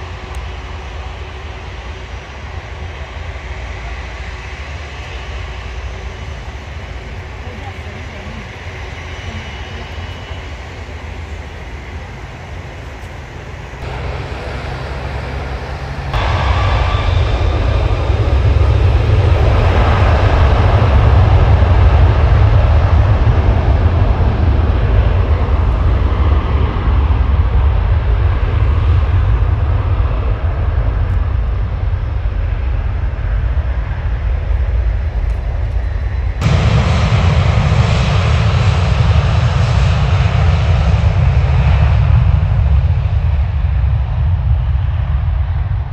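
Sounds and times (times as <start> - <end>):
jet engines rumbling: 0.0 - 45.9.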